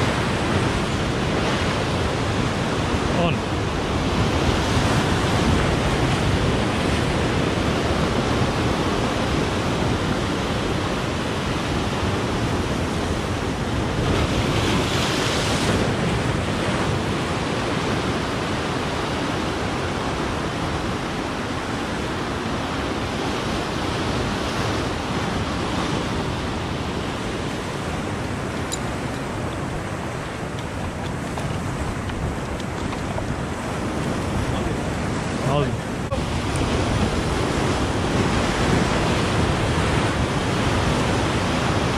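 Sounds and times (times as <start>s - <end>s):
wind on microphone: 0.0s - 41.9s
surf breaking over rocks: 23.6s - 41.9s.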